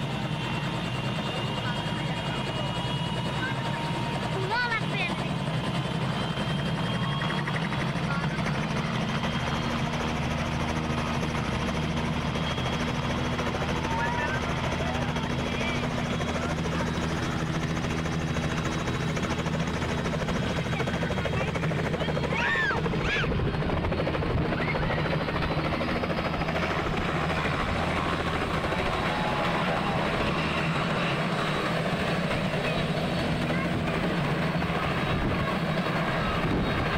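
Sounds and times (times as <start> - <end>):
helicopter engine and rotor: 0.0 - 36.9.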